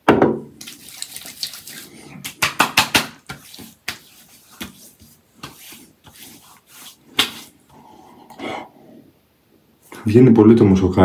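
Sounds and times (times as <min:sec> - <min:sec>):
hands slapping face: 0:01.2 - 0:04.8, 0:07.1 - 0:07.5.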